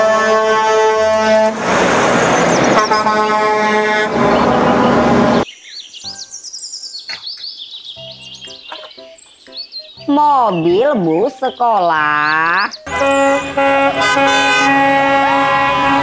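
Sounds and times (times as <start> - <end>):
truck air horn: 0.0 - 2.0, 2.6 - 5.4, 12.9 - 16.0
truck driving past: 0.8 - 5.4, 12.8 - 16.0.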